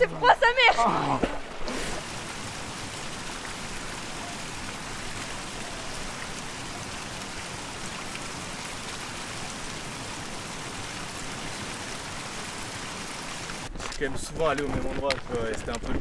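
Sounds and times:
waterfall rushing and splashing: 1.6s - 13.7s.

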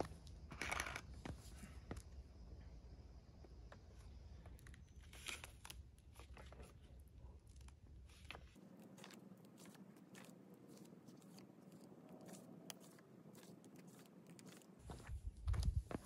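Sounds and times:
foil crunching and crinkling: 7.4s - 14.8s.

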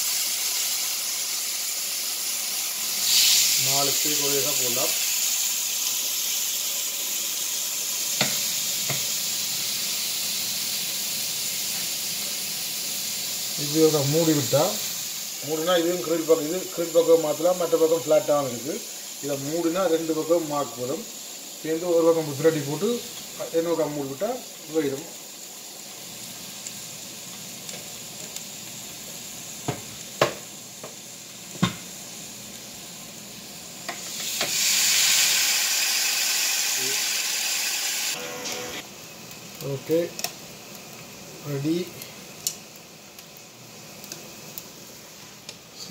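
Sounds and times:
steaks sizzling on grill: 0.0s - 45.9s.

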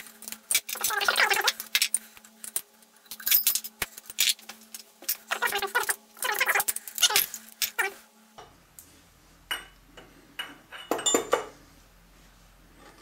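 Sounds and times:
metal parts clinking and rattling: 0.1s - 7.9s.

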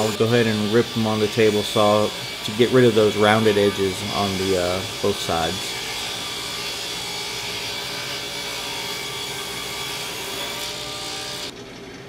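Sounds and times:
table saw ripping wood: 0.0s - 11.6s.

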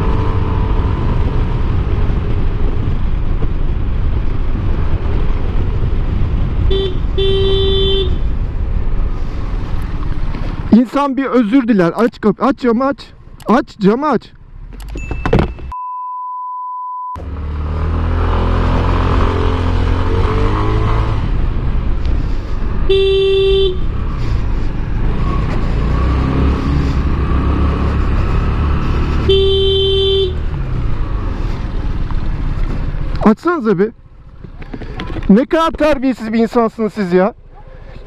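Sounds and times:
scooter horn blasts: 6.7s - 8.2s, 22.9s - 23.9s, 29.3s - 30.4s
censor beep: 15.0s - 17.2s.

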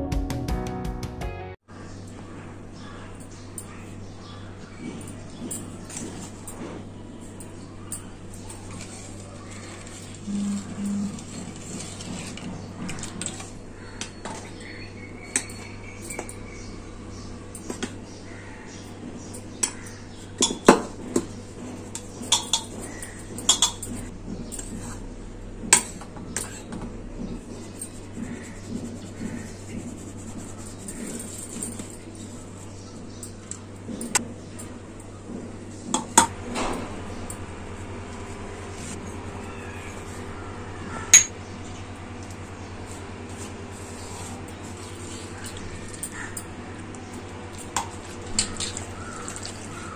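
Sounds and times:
steady low hum: 1.7s - 49.9s
spoon in flour: 8.6s - 13.6s, 27.4s - 32.7s.

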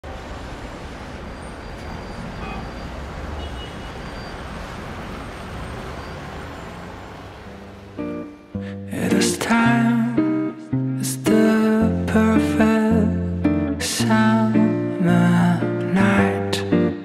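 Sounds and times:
city traffic rumble: 0.0s - 17.0s
music with held notes: 8.0s - 17.0s.

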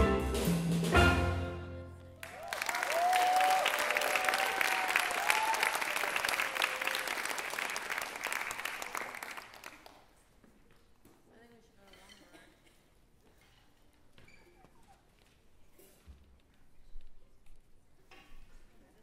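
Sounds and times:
whooping cheers: 2.2s - 7.6s
audience applauding: 2.2s - 10.1s.

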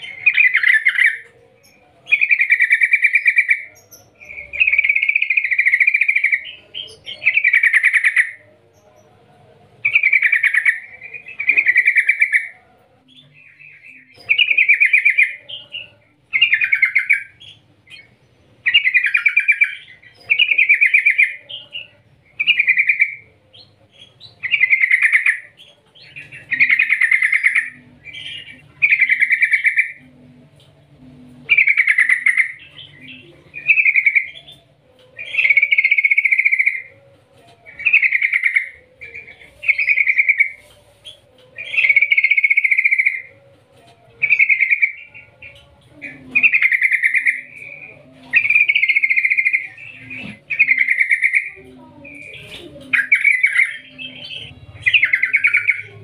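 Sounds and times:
bird singing trilled phrases: 13.2s - 30.0s, 31.5s - 34.6s, 35.2s - 36.9s, 37.6s - 40.7s, 41.5s - 43.3s, 44.2s - 56.0s.

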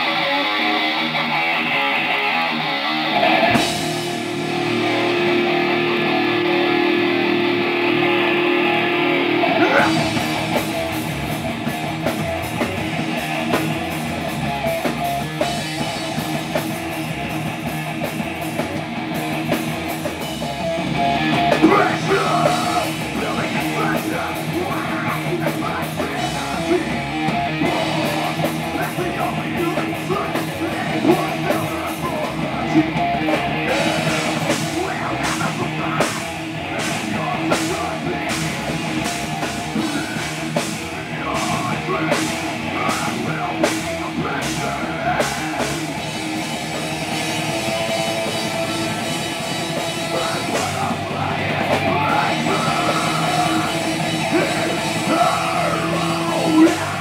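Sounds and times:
distorted electric guitars: 0.0s - 57.0s
drums: 0.0s - 57.0s
heavy metal band playing: 0.0s - 57.0s.

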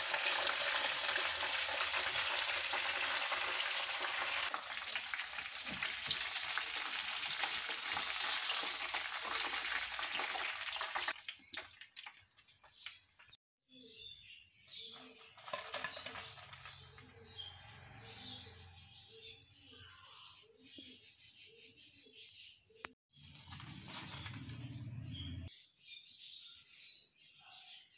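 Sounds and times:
fish deep-frying in hot oil: 0.0s - 13.3s.

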